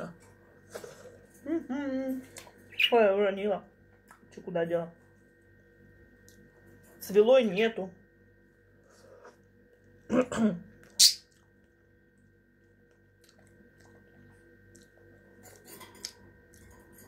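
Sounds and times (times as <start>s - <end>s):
quiet eating sounds: 0.0s - 7.2s, 8.2s - 17.0s
steady electrical hum: 0.0s - 17.0s.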